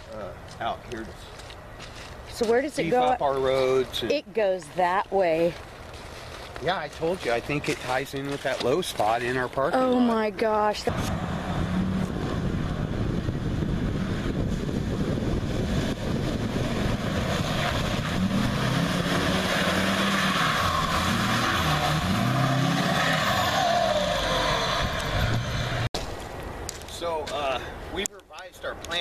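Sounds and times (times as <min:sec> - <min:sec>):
pickup engine revving: 0:10.9 - 0:25.9.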